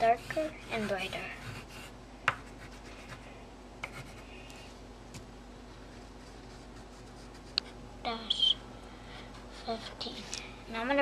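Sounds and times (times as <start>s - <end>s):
pencil scratching on paper: 0.0s - 1.9s, 2.5s - 3.2s, 3.8s - 4.2s
pencil taps: 2.2s - 2.5s.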